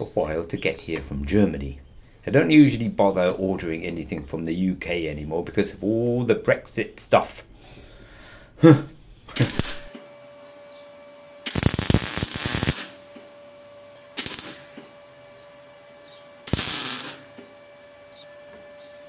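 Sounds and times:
steady welder hum: 9.2 - 19.0
arc welding crackling: 9.3 - 10.1, 11.4 - 13.2, 14.1 - 15.0, 16.4 - 17.5.

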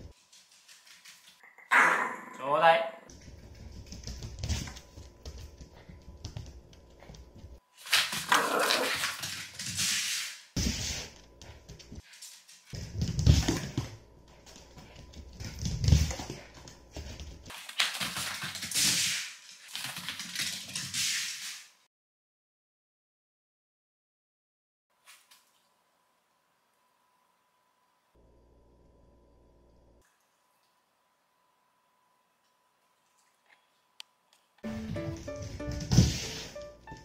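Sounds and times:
dog scuffling with toy ball: 3.2 - 21.6.

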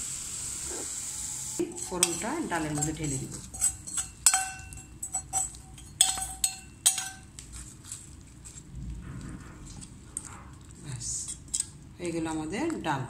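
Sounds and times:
stirring in pot: 1.6 - 12.8
metal ladle clinking on pot: 1.8 - 7.3.

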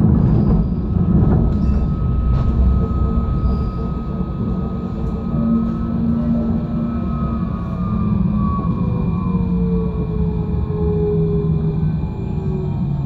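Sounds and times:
tram wheels rumbling on rails: 0.0 - 13.0
thin high tone: 1.5 - 7.7.

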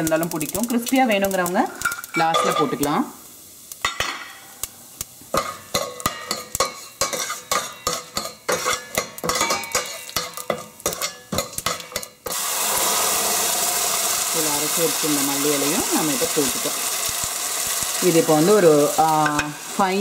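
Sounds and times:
oil sizzling: 0.0 - 20.0
metal spoon scraping a pan: 5.3 - 13.0.

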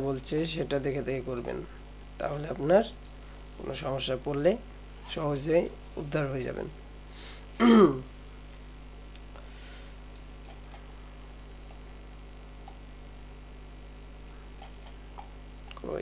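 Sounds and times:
faint recording hiss: 0.0 - 16.0
low mains hum: 0.0 - 16.0
computer mouse clicks: 10.1 - 10.9.

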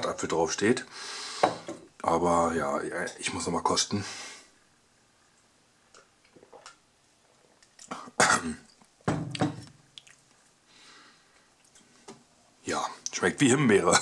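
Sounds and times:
person sipping: 6.0 - 8.2
person coughing: 7.9 - 8.6.

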